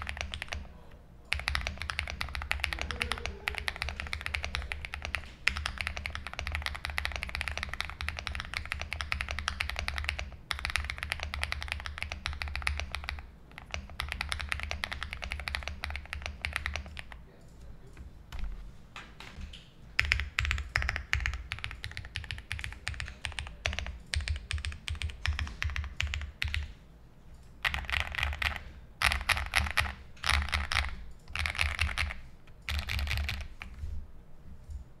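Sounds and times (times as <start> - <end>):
mechanical keyboard typing: 0.0 - 33.8.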